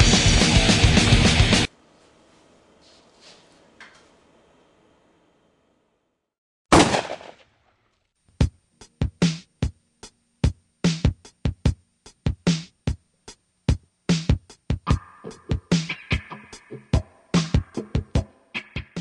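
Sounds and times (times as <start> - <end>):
drum machine beat: 0.0 - 1.7, 8.4 - 19.0
gunshot: 6.7 - 7.5.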